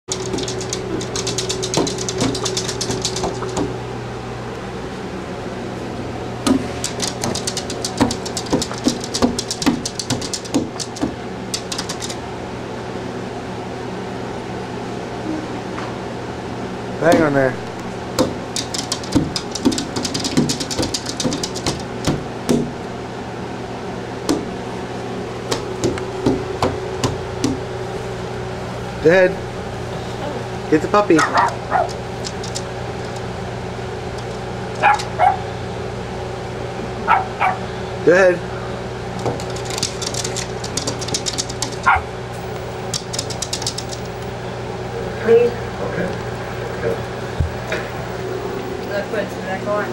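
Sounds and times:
knocks against glass: 0.1 - 3.7, 6.4 - 12.2, 18.2 - 22.7
dog claws scratching glass door: 0.1 - 3.8, 6.5 - 12.2, 18.2 - 22.7, 31.2 - 33.3, 34.1 - 35.4, 39.2 - 42.1, 42.8 - 44.2
hand slapping glass window: 0.1 - 3.8, 6.4 - 12.2, 18.2 - 22.8, 24.3 - 24.5, 25.5 - 27.6, 39.2 - 42.0, 42.9 - 44.1
steady hum: 0.1 - 49.9.

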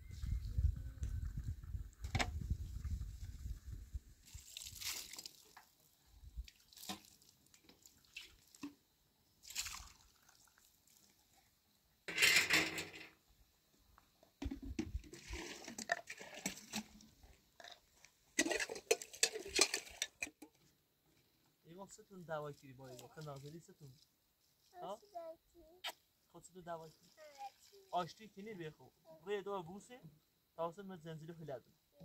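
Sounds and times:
water splashing and dripping: 4.2 - 5.8, 6.4 - 8.8, 9.4 - 11.2
metal tray scraping and clinking: 12.1 - 13.1, 18.4 - 20.3.

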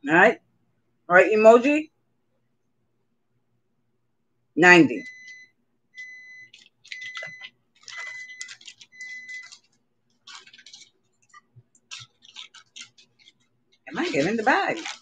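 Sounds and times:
steady high beep: 5.0 - 7.4
keyboard typing and clicking: 6.0 - 9.7.

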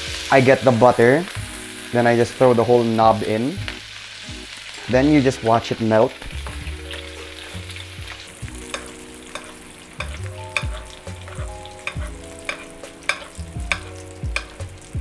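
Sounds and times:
butter sizzling in frying pan: 0.0 - 15.0
metal spoon scraping pan: 6.9 - 14.8.

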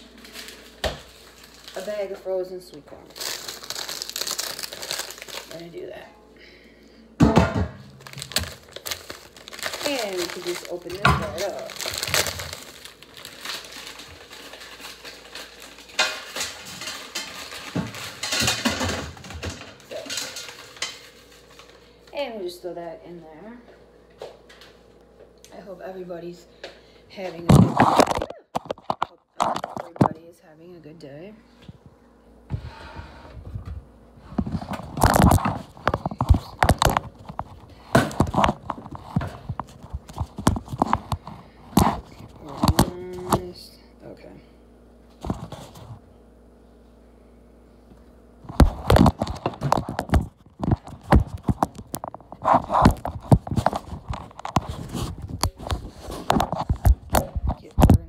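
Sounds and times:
kitchen items knocking on wooden board: 7.2 - 7.9
kitchen clatter of pots and dishes: 16.0 - 21.2.

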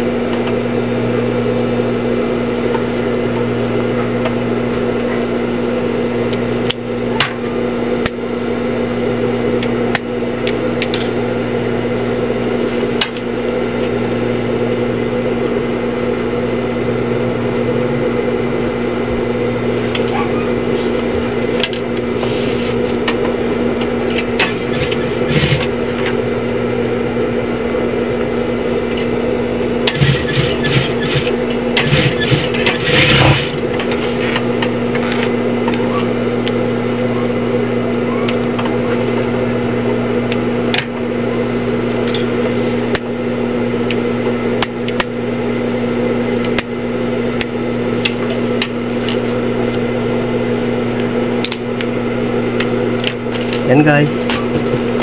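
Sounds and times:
sewing machine motor humming: 10.3 - 27.3, 28.8 - 39.6.

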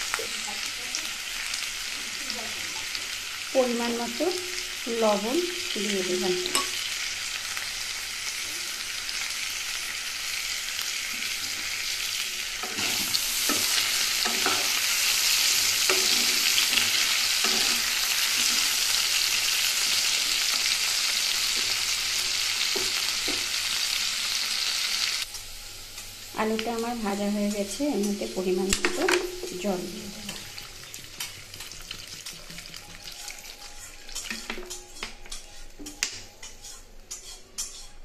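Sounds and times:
potatoes sizzling in hot oil: 0.0 - 35.5
wooden spatula scraping: 12.6 - 18.9, 31.2 - 38.0.

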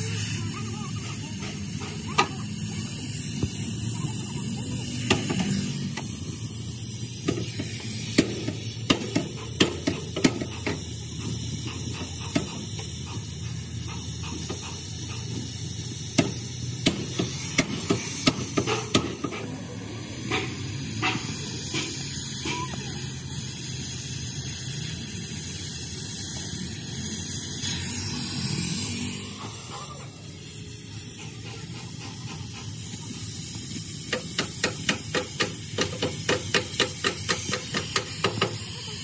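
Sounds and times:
cutting torch hissing: 0.0 - 39.0.

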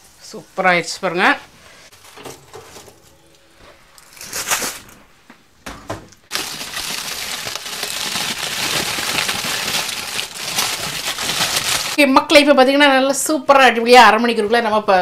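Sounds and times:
aluminium foil crinkling: 1.9 - 5.0, 6.3 - 12.0.

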